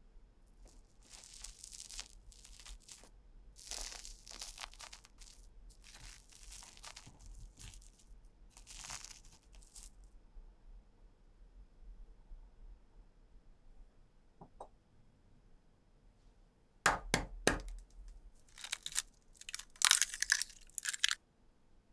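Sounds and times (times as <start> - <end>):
chopsticks tearing soft omelette: 0.6 - 10.0, 18.5 - 21.2.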